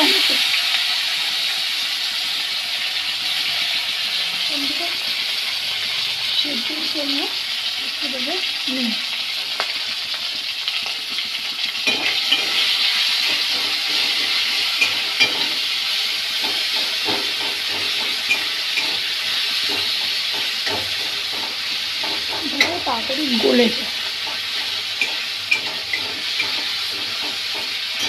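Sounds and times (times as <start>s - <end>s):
tomatoes sizzling in hot oil: 0.0s - 28.0s
metal spatula scraping pan: 11.8s - 28.0s.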